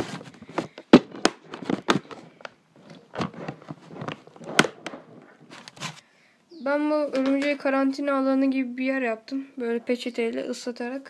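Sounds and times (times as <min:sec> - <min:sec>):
plastic container clicking and crackling: 0:00.4 - 0:05.8.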